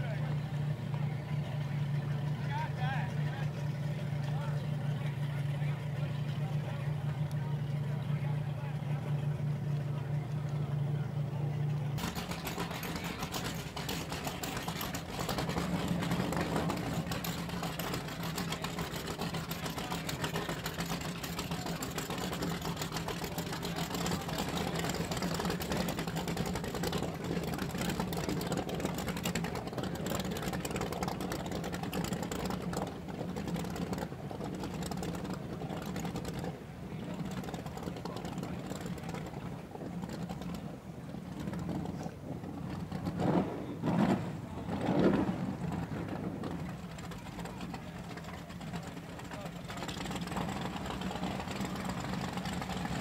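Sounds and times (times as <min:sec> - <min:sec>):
boat engine idling: 0:00.0 - 0:53.0
rapid mechanical chatter: 0:11.8 - 0:42.0, 0:46.5 - 0:53.0.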